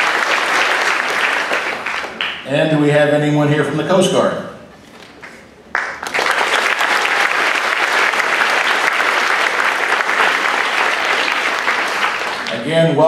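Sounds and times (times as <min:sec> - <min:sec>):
audience applauding: 0:00.0 - 0:02.4, 0:05.0 - 0:12.7.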